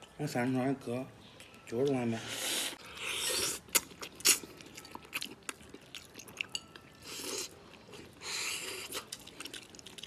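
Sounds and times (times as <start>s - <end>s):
person chewing: 2.3s - 10.0s.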